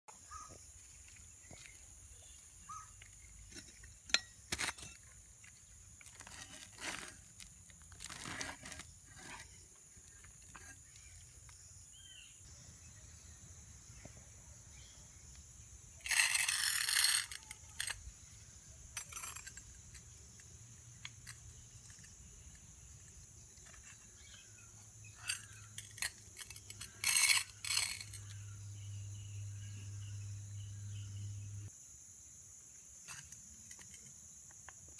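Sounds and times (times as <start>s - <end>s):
metal scrape: 3.4s - 5.2s, 6.1s - 10.9s, 16.0s - 18.0s, 25.1s - 28.3s.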